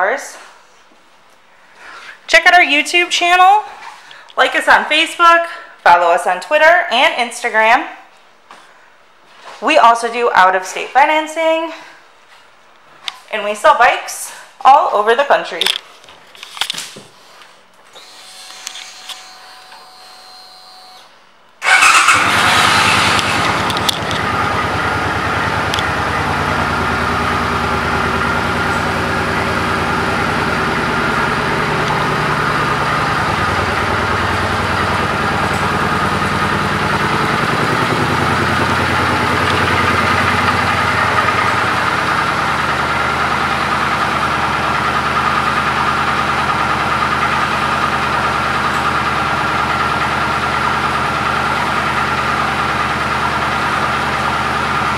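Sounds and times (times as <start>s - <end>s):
motorcycle engine idling: 21.6s - 54.9s.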